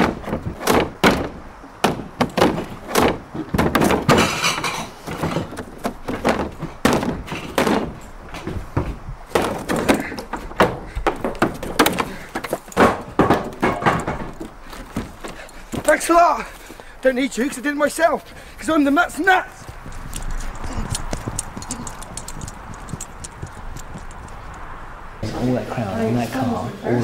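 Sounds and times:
wood crashing and splintering: 0.0s - 8.6s, 9.3s - 16.1s
wooden board thudding and cracking: 0.0s - 16.0s.

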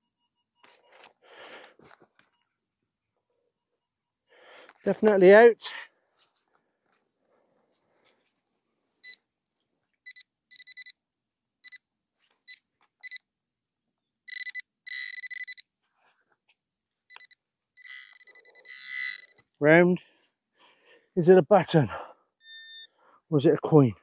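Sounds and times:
metal detector beeping: 10.1s - 10.9s, 12.5s - 13.2s, 14.3s - 15.6s, 17.1s - 19.5s, 22.4s - 23.0s.

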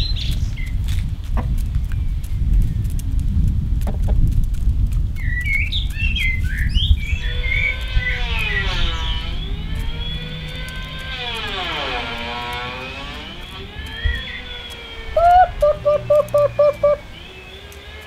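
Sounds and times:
bird chirping: 0.0s - 0.8s, 5.2s - 18.0s
low rumbling noise: 0.0s - 18.0s
siren-like wailing tone: 7.0s - 18.0s.

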